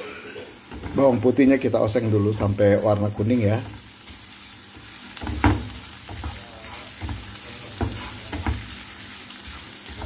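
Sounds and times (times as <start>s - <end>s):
garlic sizzling in a frying pan: 0.0s - 10.0s
spatula scraping a pan: 3.2s - 10.0s.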